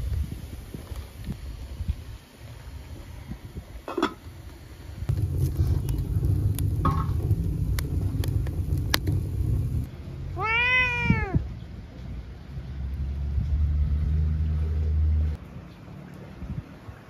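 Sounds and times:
fire popping: 0:05.0 - 0:09.9
wood fire crackling: 0:05.0 - 0:09.9
low rumble: 0:05.1 - 0:10.4
cat meowing: 0:10.4 - 0:11.5.

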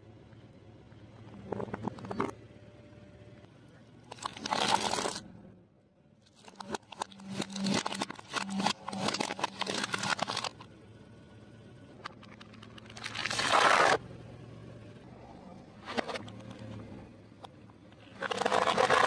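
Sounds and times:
tyre crushing plastic: 0:06.4 - 0:10.6, 0:12.6 - 0:14.0, 0:18.2 - 0:19.0.

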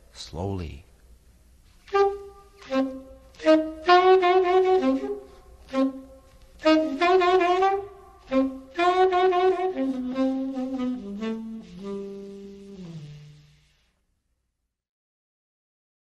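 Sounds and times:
person reading poetry: 0:00.0 - 0:01.0
bluesy tenor saxophone: 0:01.8 - 0:13.8.

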